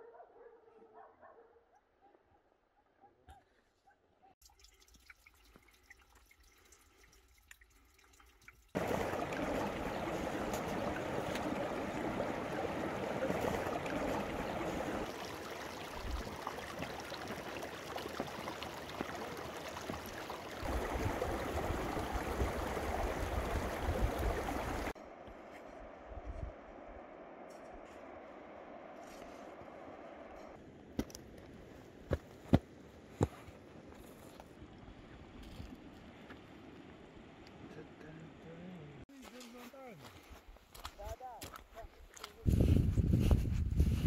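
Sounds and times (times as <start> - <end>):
meltwater dripping: 4.4 - 25.0
stream rushing through ice: 8.7 - 25.0.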